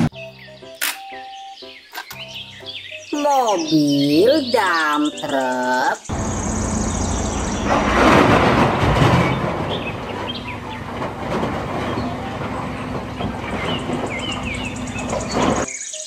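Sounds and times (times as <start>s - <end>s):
heavy truck rumbling and clattering: 6.1s - 15.7s.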